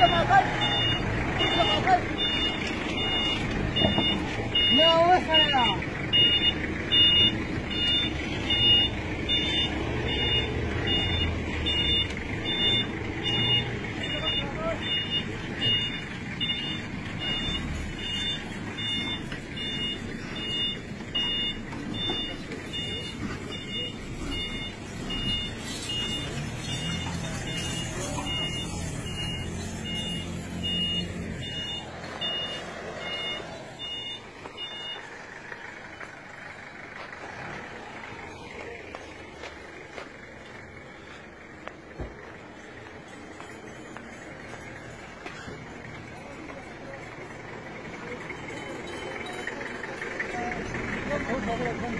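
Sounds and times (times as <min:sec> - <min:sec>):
reversing alarm beeping: 0:00.0 - 0:36.1
engine running: 0:00.0 - 0:51.9.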